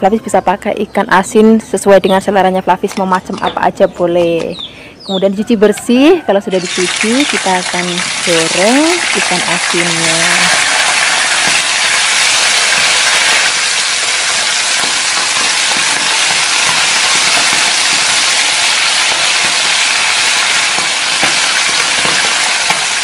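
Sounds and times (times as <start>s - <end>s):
fish frying in hot oil: 6.6s - 23.0s
spatula stirring in oil: 8.1s - 23.0s.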